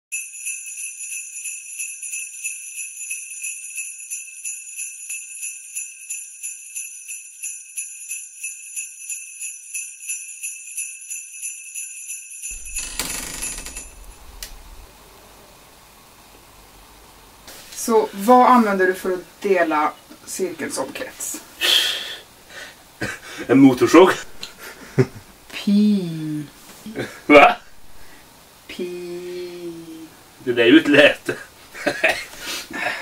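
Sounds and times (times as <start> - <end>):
jingle bells shaken: 0.1 - 14.9
short rush of noise: 12.6 - 17.8.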